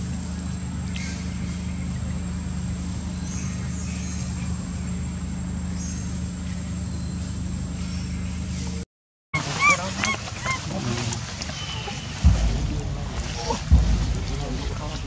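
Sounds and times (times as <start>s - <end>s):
low mechanical hum: 0.0s - 8.8s, 9.4s - 15.0s
steady hiss: 10.8s - 15.0s.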